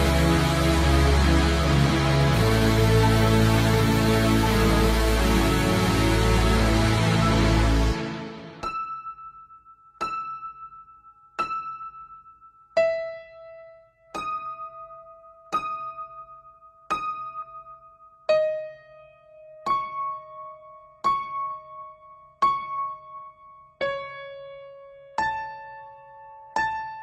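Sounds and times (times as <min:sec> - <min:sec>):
slow keyboard notes: 0:00.0 - 0:09.4.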